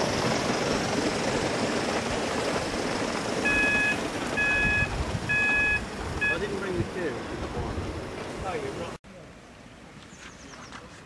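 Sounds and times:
model train wheels rumbling: 0.0s - 9.0s
high beep: 3.5s - 6.4s.

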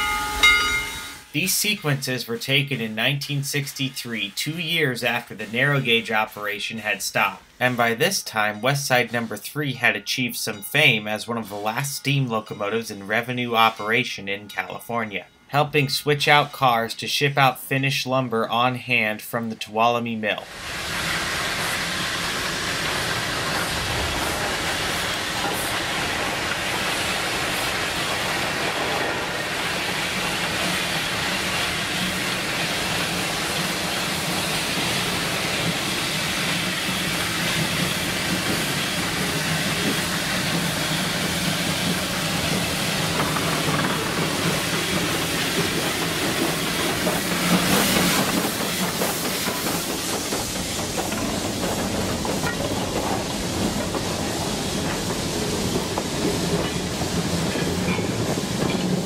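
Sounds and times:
steam hiss: 0.0s - 14.2s, 20.4s - 59.0s
rail clatter: 20.5s - 59.0s.

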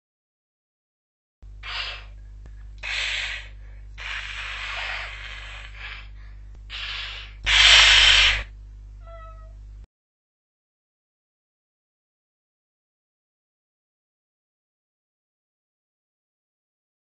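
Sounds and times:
steady low hum: 1.4s - 9.9s
cats hissing: 1.6s - 2.2s, 2.8s - 6.1s, 6.7s - 9.5s.

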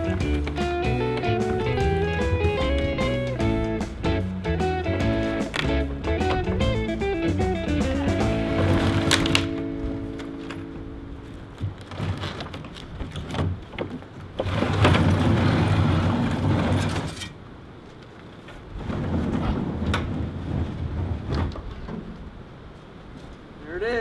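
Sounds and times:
knocks and clunks: 0.0s - 10.7s, 11.5s - 17.4s, 18.5s - 22.4s
wooden barn door scraping open: 5.0s - 9.7s, 11.6s - 17.4s, 18.4s - 22.4s.

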